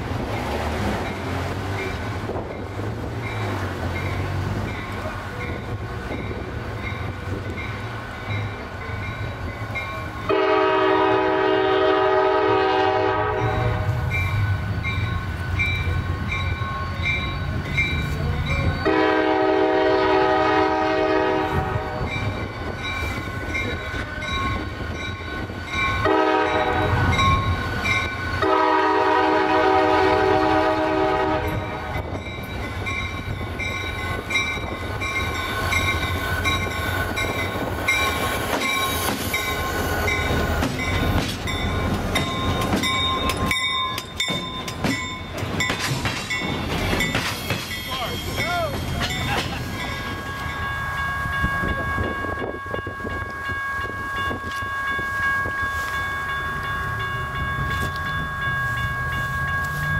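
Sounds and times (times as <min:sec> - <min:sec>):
crossing bell dinging: 0:00.0 - 0:59.9
locomotive engine rumble: 0:00.0 - 0:59.9
locomotive air horn: 0:10.3 - 0:14.1, 0:18.8 - 0:22.1, 0:26.0 - 0:27.3, 0:28.4 - 0:32.1.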